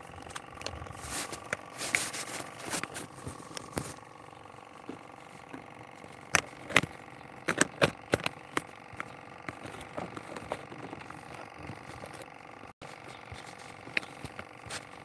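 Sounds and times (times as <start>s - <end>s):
sharp clicks and knocks: 4.8s - 12.3s.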